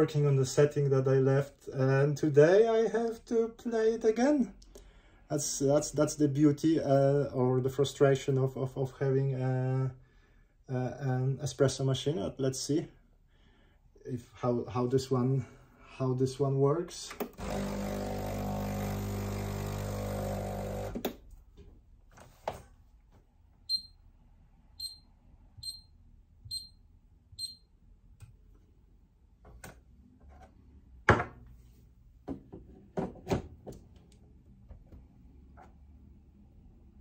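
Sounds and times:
espresso machine pump humming: 0:17.4 - 0:21.0
short high beeps: 0:25.6 - 0:25.9.

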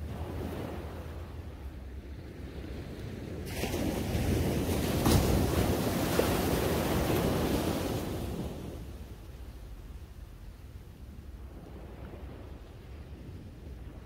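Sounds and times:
wave breaking on beach: 0:03.3 - 0:08.9.

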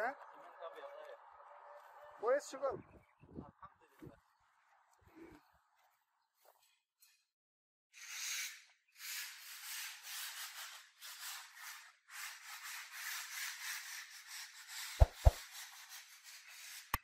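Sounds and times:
rubbing scraping noise: 0:09.1 - 0:16.9
sharp thumps: 0:15.0 - 0:15.4.

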